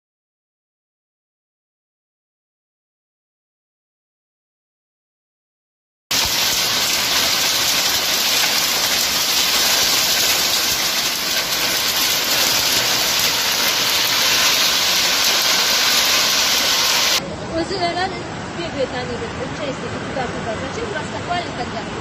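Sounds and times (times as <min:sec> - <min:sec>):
heavy rain hissing: 0:06.1 - 0:17.2.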